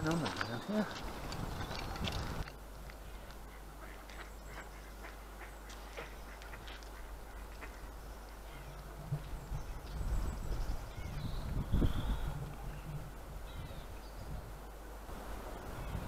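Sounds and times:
geese and ducks calling: 3.3 - 8.8.

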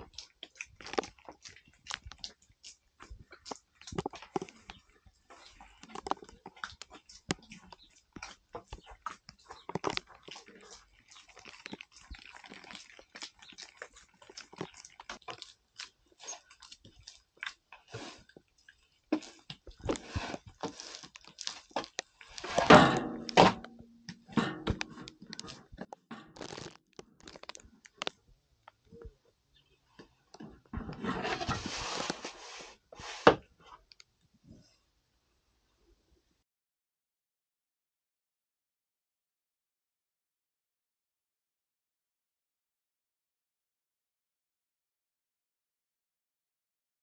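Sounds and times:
small clicks and crackles: 0.0 - 22.7, 23.6 - 29.1
crunching and chewing cookies: 0.0 - 34.8.

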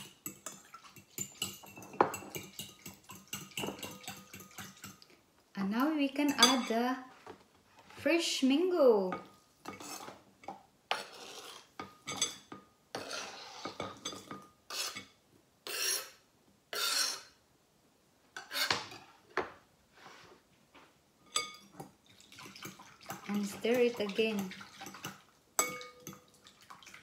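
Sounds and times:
spoon stirring in bowl: 0.0 - 5.1, 5.8 - 6.8, 9.2 - 15.1, 21.3 - 27.0
knife scraping into glass bowl: 9.7 - 10.2, 10.9 - 15.1, 15.7 - 17.4, 18.4 - 19.0.

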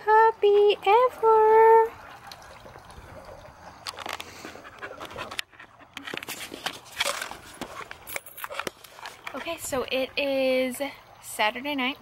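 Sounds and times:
puppy panting: 4.3 - 6.1.

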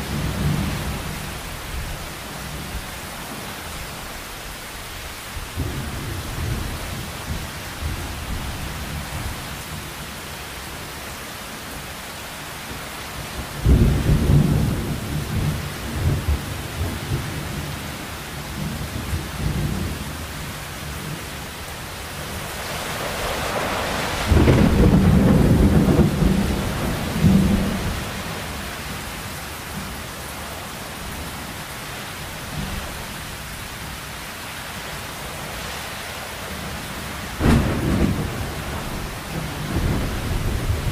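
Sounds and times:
heavy rain falling: 0.0 - 40.9
thunder rumbling: 22.2 - 28.6, 37.4 - 40.9.

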